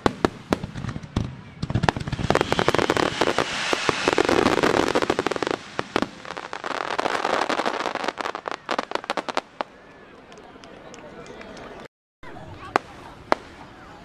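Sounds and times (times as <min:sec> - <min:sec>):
fireworks bangs and crackling: 0:00.0 - 0:09.8, 0:12.6 - 0:13.8.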